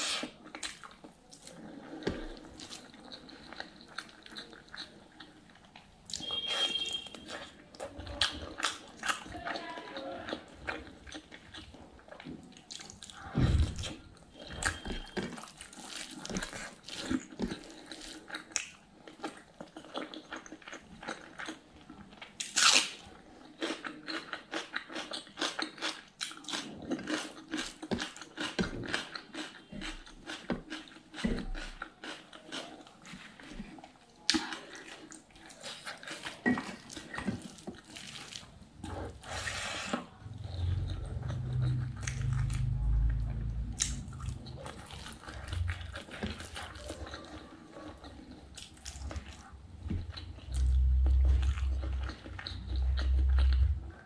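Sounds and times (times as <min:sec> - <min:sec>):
wet chewing and mouth smacks: 0:00.0 - 0:09.4, 0:10.0 - 0:54.0
crunchy onion bite: 0:22.4 - 0:23.0.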